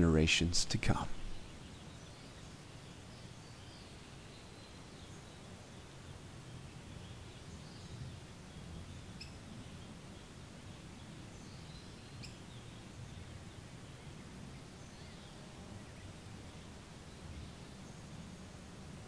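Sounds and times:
faint bird chirps: 6.8 - 18.1.

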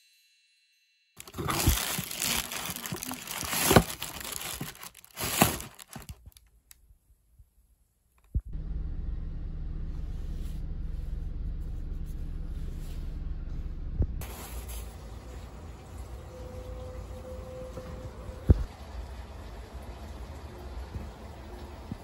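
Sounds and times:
packaging crinkling and rustling: 1.2 - 6.6
steady low hum: 8.4 - 18.7.

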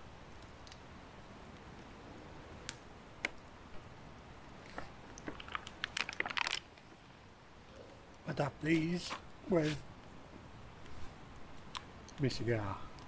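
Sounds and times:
packaging clicks and crackling: 4.7 - 6.8.

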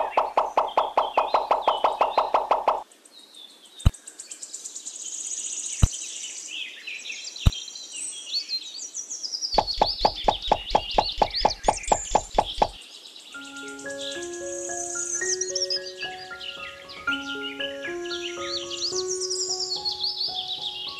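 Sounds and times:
sharp clicks: 0.0 - 2.8, 9.6 - 12.8
birds chirping and twittering: 0.0 - 20.9.

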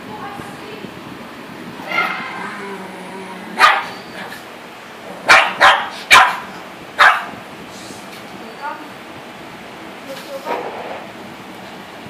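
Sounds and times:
dog barking: 3.6 - 4.0, 5.2 - 7.4.

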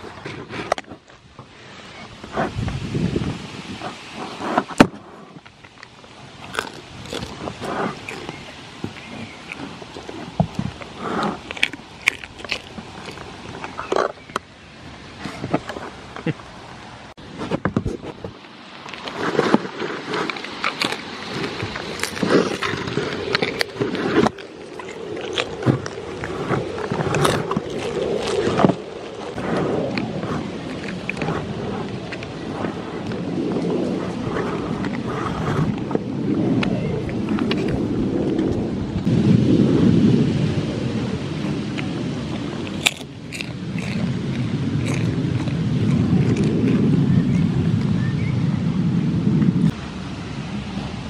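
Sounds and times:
wind buffeting microphone: 0.0 - 51.0
goats rubbing against microphone: 6.4 - 11.8.

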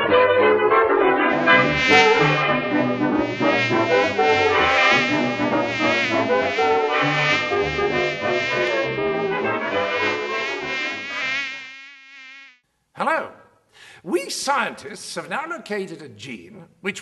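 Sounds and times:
brass music with bass line: 1.1 - 11.6
cartoon fly buzzing: 1.3 - 12.6.

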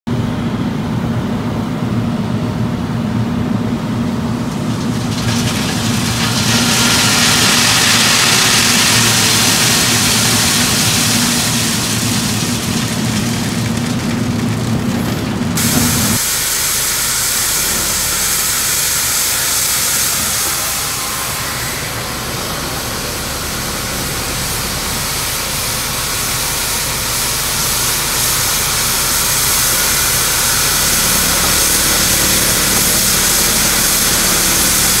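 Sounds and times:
low machine hum: 0.1 - 35.0
loud hiss: 5.0 - 13.6, 15.6 - 35.0.

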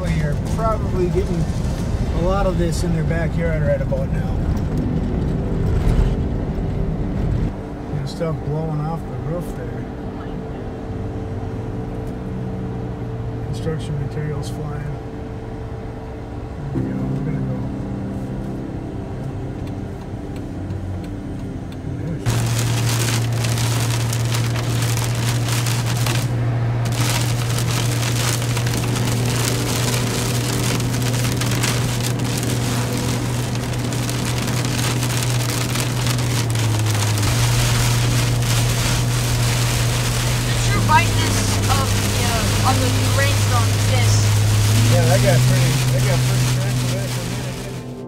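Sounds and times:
heavy rain pelting windshield: 0.0 - 7.6, 19.8 - 48.0
truck engine and road hum: 0.0 - 48.0.

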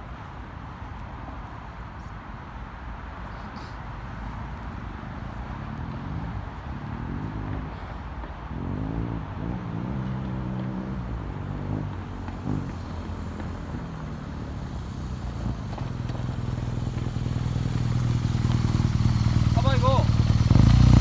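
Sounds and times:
motorcycle engine revving: 8.5 - 21.0.

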